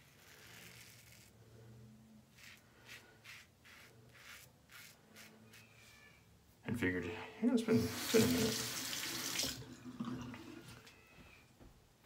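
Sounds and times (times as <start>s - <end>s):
razor rasping through stubble: 0.0s - 1.4s, 2.3s - 5.9s.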